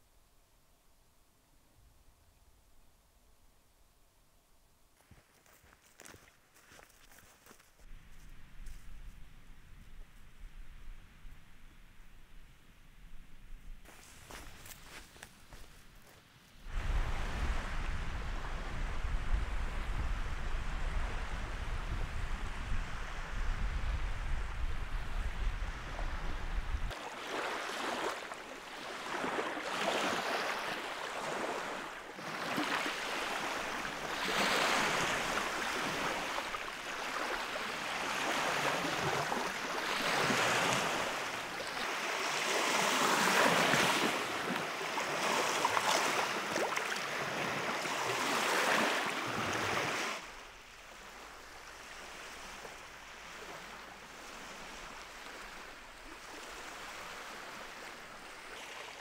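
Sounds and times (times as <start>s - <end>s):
wind buffeting microphone: 16.6s - 27.0s
waves washing onto shore: 16.6s - 59.0s.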